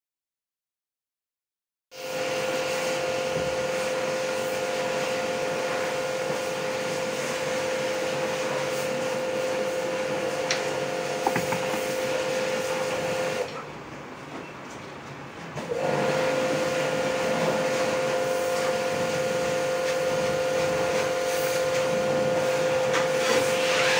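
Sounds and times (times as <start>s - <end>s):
machine hum with whine: 2.0s - 13.6s.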